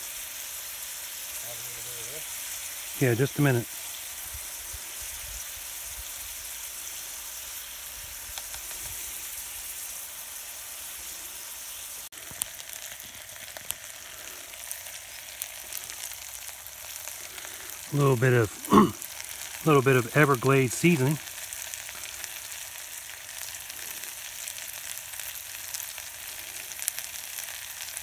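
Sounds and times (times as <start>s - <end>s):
food sizzling in a pot: 0.0s - 28.0s.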